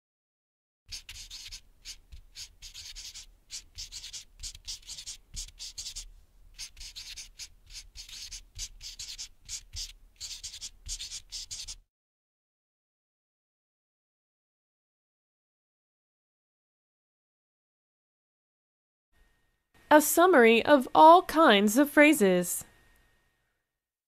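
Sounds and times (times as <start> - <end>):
marker pen writing: 0.9 - 11.8.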